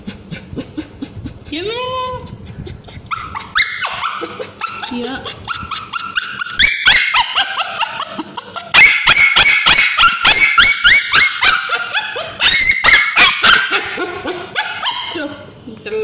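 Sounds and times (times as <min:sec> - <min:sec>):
dog yelping: 0:02.8 - 0:15.4.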